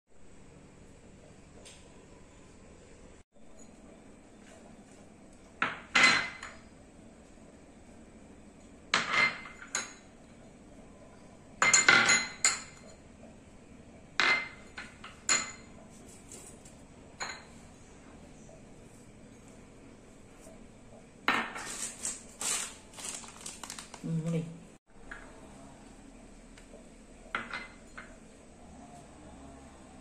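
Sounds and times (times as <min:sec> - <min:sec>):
glass bowls clinking on metal plate: 0:27.3 - 0:28.2.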